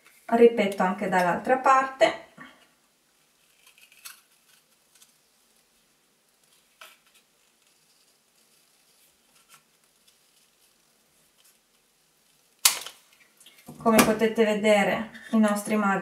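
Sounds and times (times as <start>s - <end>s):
paper crackling: 3.2s - 14.0s.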